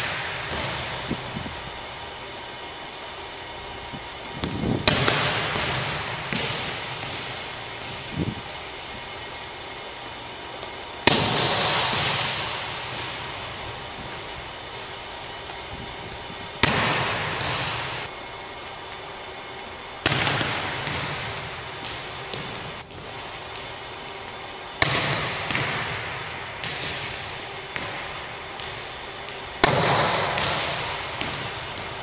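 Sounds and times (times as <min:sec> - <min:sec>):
volleyballs slapping on gym floor: 0:00.0 - 0:01.5, 0:04.4 - 0:09.3, 0:10.6 - 0:15.6, 0:16.5 - 0:18.2, 0:20.0 - 0:32.0
high squeak: 0:22.8 - 0:24.0.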